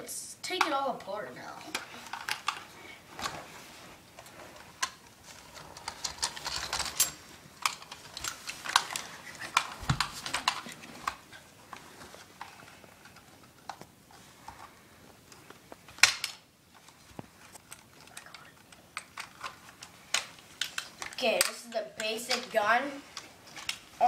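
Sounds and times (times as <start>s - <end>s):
plastic clicks and rattles: 4.2s - 13.9s, 15.3s - 21.6s.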